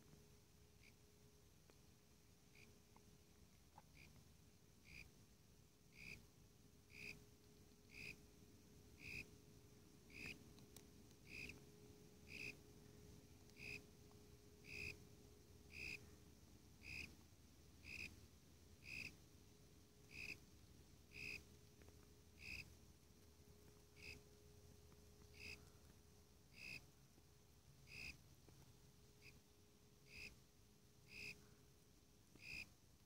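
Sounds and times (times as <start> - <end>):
cricket chirping: 0.8 - 1.0, 2.5 - 4.2, 4.8 - 5.2, 5.8 - 6.3, 6.9 - 17.2, 17.8 - 18.2, 18.8 - 20.5, 21.1 - 22.8, 23.6 - 28.3, 29.2 - 31.6, 32.3 - 32.8.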